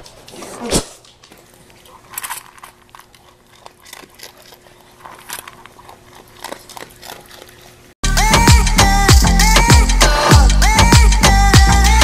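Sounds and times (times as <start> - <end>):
dog chewing food: 1.0 - 8.0.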